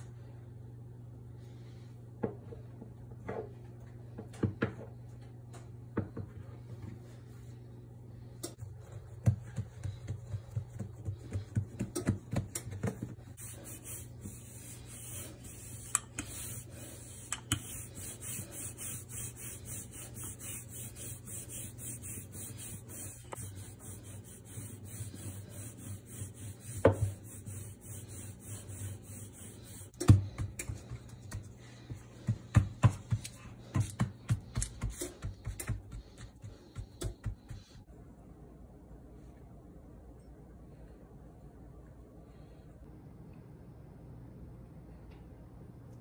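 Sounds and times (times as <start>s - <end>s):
steady low hum: 0.0s - 46.0s
rolling pin rubbing over dough: 8.6s - 37.9s.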